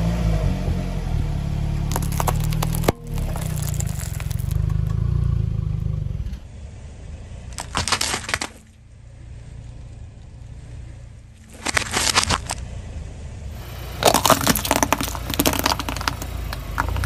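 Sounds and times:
car tyre rumbling: 0.0 - 17.0
candy cracking and crunching: 1.9 - 4.7, 7.6 - 8.6, 11.5 - 12.6, 14.0 - 17.0.

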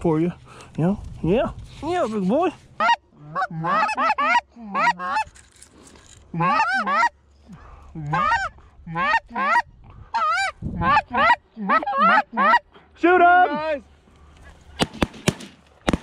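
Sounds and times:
geese honking and clucking: 2.8 - 5.4, 6.3 - 7.2, 8.0 - 12.7.

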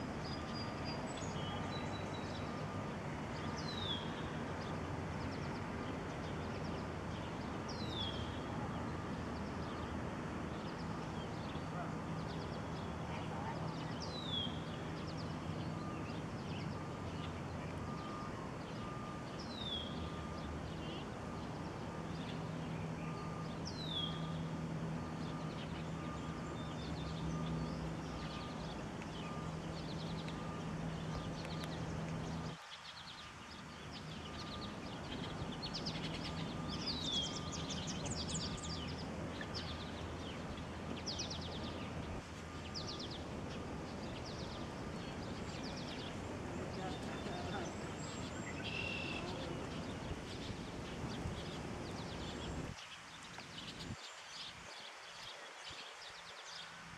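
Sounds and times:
steady low hum: 0.0 - 52.8
birds high chips and trills: 25.1 - 55.0.

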